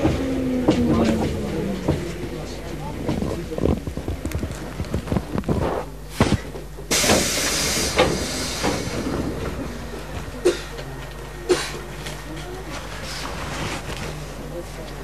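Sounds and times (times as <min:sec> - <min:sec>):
compressed air hissing from train: 0:05.8 - 0:09.5.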